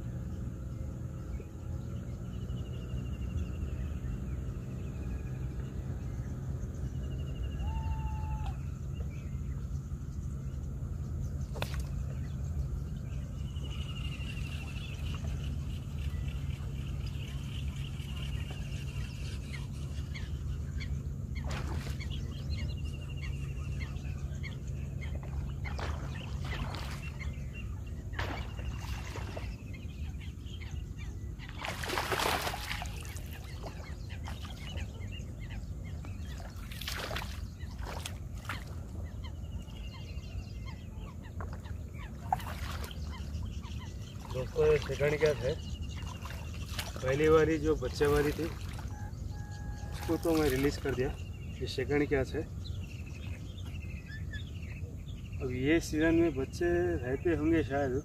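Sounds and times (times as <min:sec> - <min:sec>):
low hum: 0:00.0 - 0:55.4
faint bird calls: 0:00.0 - 0:58.0
fish thrashing and splashing: 0:25.6 - 0:27.2, 0:31.5 - 0:34.7, 0:36.4 - 0:38.8, 0:46.0 - 0:47.0.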